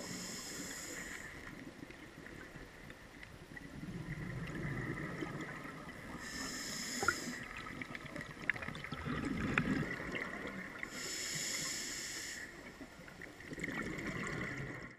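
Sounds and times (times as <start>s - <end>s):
hissing regulator inhalations: 0.0s - 1.6s, 6.2s - 7.5s, 10.9s - 12.7s.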